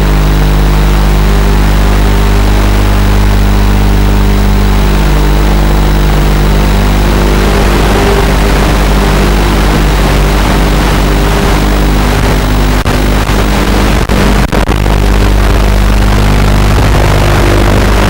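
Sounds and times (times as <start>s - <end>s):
quadcopter motors humming: 0.0s - 18.0s.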